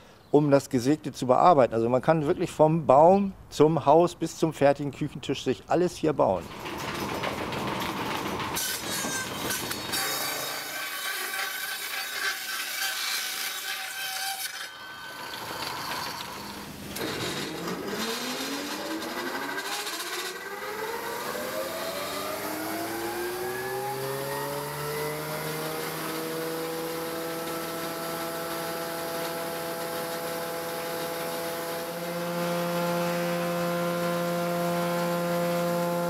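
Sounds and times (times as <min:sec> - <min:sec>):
sawmill machinery clatter: 0:06.4 - 0:36.0
motor spinning up whine: 0:14.8 - 0:36.0.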